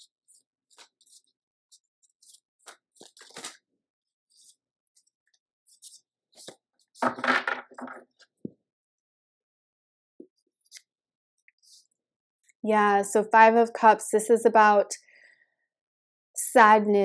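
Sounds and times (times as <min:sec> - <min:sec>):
cards being shuffled: 0:00.3 - 0:01.3, 0:02.0 - 0:03.6, 0:05.7 - 0:07.5.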